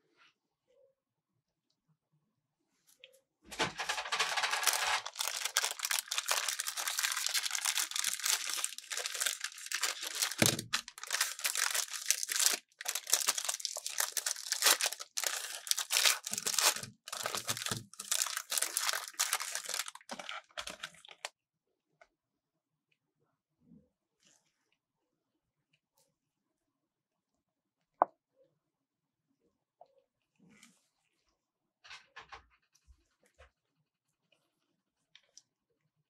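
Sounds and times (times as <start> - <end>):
plastic wrapper crinkling: 3.8 - 21.3.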